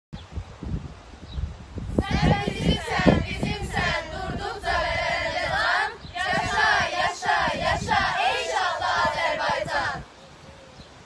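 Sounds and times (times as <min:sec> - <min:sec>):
girls' voices in unison: 0:01.9 - 0:10.0.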